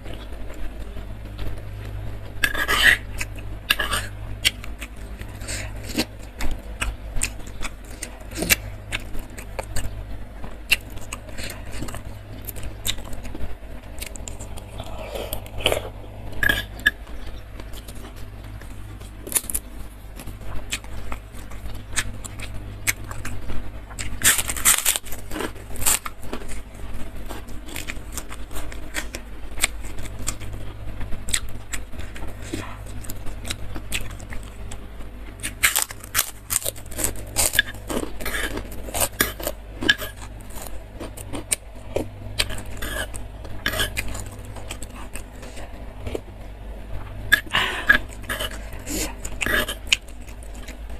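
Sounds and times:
cracker crunching: 0.0 - 50.9
steady low hum: 0.0 - 50.9
spoon scraping a stone bowl: 2.4 - 3.0
wet chewing and mouth clicks: 47.0 - 50.9.

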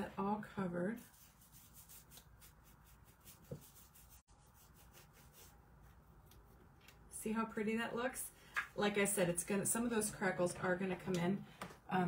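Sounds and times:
paintbrush strokes: 0.9 - 6.6.

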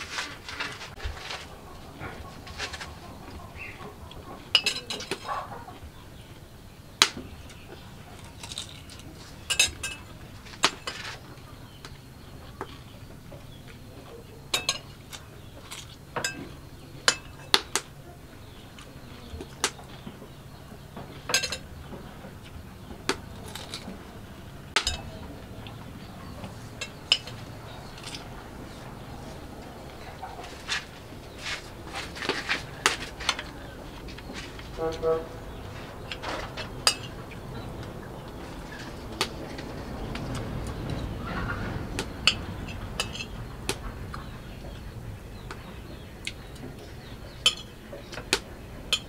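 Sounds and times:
spoon clinking on dishes: 4.5 - 5.2, 9.5 - 10.1, 14.5 - 15.0, 15.8 - 17.6, 21.3 - 21.7, 24.8 - 25.3, 26.7 - 28.3, 36.8 - 37.2, 43.0 - 43.4, 47.4 - 47.7.

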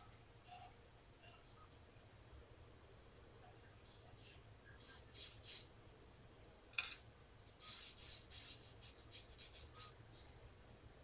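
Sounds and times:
brush scrubbing paint: 7.5 - 10.3.

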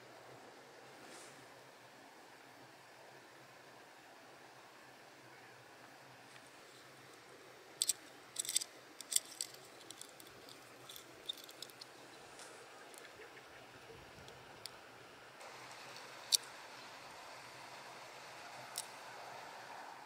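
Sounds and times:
faint steady hiss: 0.0 - 20.0
fishing lure hooks clinking: 7.8 - 11.9.

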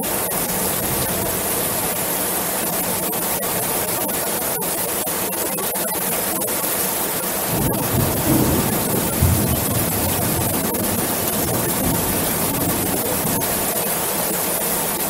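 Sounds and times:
heavy rain on a metal roof: 0.0 - 15.0
low rumble of thunder: 7.5 - 13.7.

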